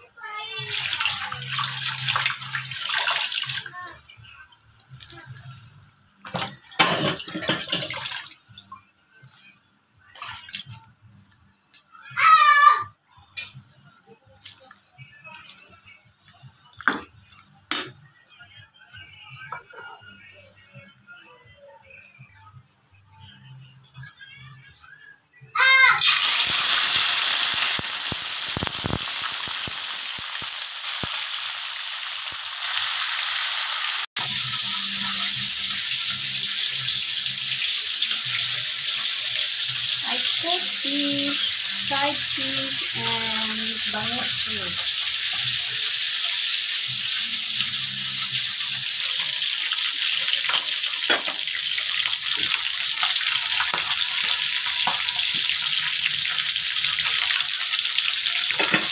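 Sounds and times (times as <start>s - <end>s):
fish sizzling in hot oil: 0.2s - 8.2s, 26.0s - 58.9s.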